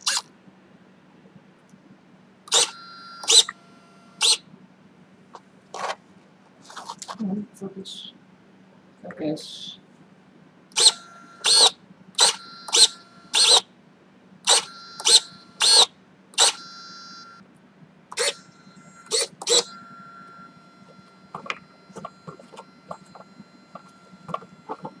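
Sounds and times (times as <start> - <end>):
servo whirring: 0.0 - 0.3, 2.5 - 3.6, 4.2 - 4.4, 10.7 - 13.7, 14.5 - 16.6, 18.1 - 18.4, 19.1 - 20.4
servo high whine: 2.5 - 4.5, 10.7 - 13.7, 14.4 - 17.4, 18.1 - 25.0.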